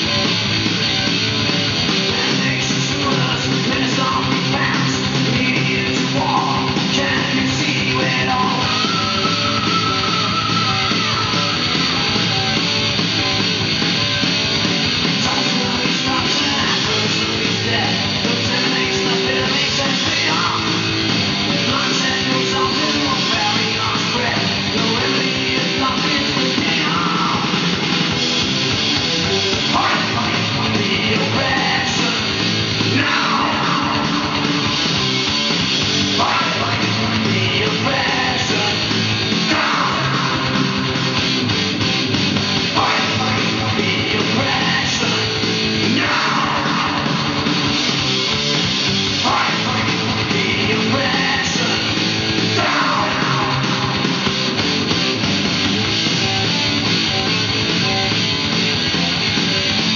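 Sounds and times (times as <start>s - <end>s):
rock music with vocals: 0.0s - 59.9s.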